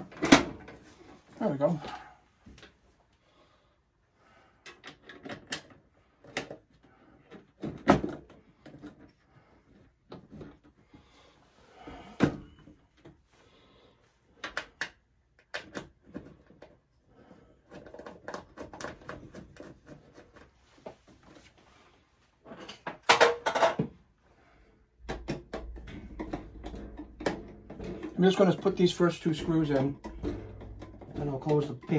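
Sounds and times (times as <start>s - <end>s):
metal panel cover rattling: 25.1s - 31.9s
metal clatter: 25.2s - 31.9s.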